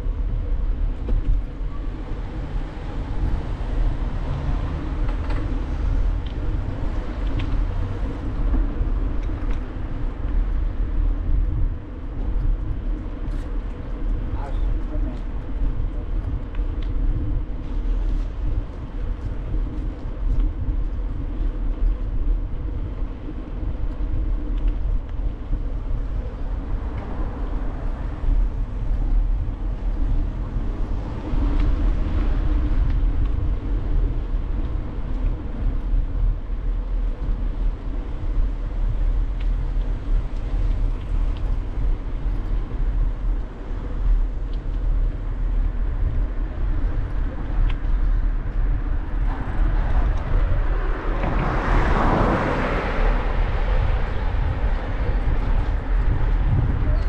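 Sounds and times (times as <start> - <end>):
road noise: 0.0 - 57.0
wind rumbling on microphone: 0.0 - 57.0
vehicle passing: 2.3 - 6.2, 48.9 - 56.9.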